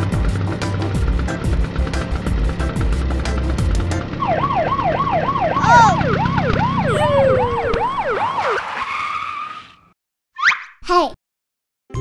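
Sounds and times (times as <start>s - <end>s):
cartoon police siren yelp: 4.2s - 9.6s.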